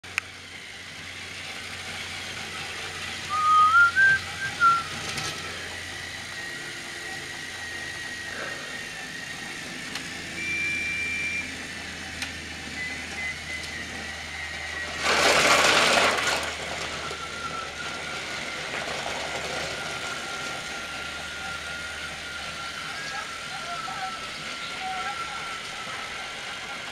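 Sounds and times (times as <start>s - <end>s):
toy train engines whirring: 0.0s - 26.9s
warbling toy train whistle: 2.4s - 8.9s, 19.8s - 26.9s.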